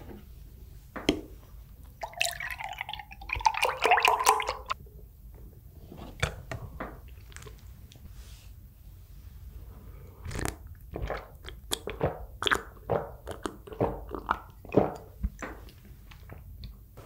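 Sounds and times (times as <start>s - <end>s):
milk pouring into a glass: 2.0s - 4.8s.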